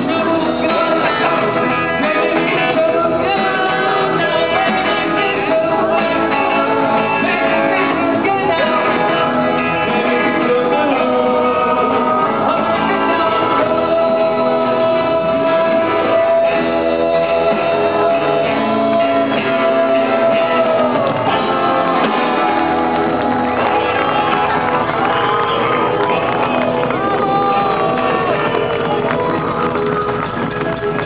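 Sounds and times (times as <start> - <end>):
man singing into a microphone: 0.0 - 22.5
pop-rock band playing: 0.0 - 31.0.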